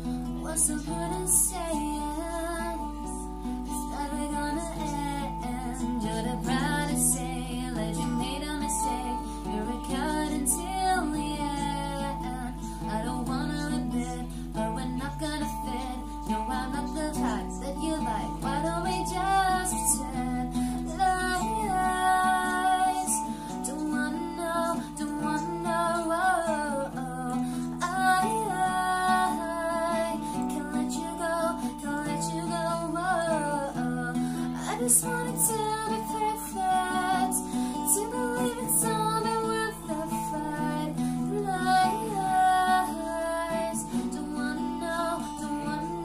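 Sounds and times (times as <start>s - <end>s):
acoustic guitar strumming: 0.0s - 46.0s
woman singing: 0.0s - 46.0s.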